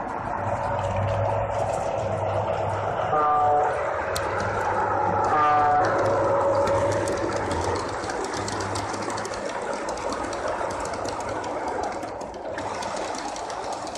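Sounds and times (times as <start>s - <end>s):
model train wheels clicking: 3.6s - 13.9s.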